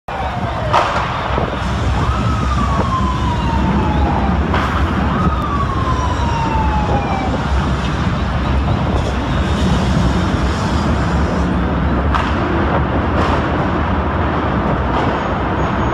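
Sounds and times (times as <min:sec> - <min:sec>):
fire engine siren: 0:00.1 - 0:12.1
steady low rumble: 0:00.1 - 0:15.6.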